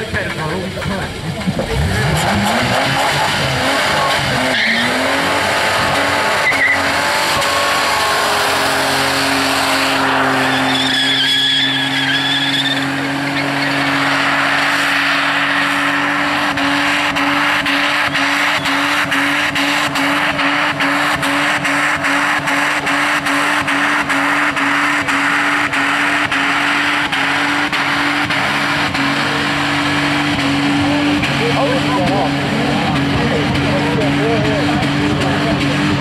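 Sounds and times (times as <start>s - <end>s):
car engine revving: 0.0s - 36.0s
tyres squealing: 0.8s - 20.6s.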